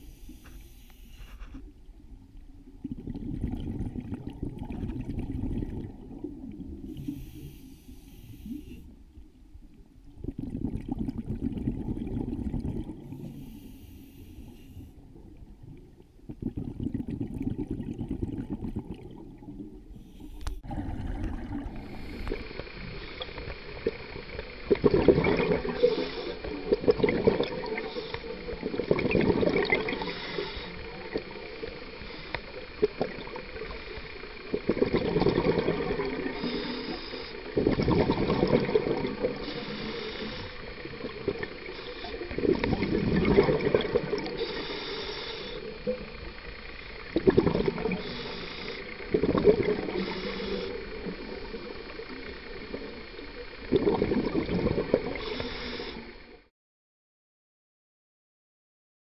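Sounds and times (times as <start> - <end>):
breath hissing through regulator: 0.0 - 1.6, 6.9 - 8.9, 13.0 - 15.0, 20.0 - 28.8, 29.7 - 32.8, 35.4 - 43.4, 44.0 - 46.3, 47.6 - 53.2, 54.8 - 56.2
exhaled air bubbling: 0.0 - 9.0, 10.0 - 56.4
underwater surge: 16.4 - 31.4, 34.6 - 46.1.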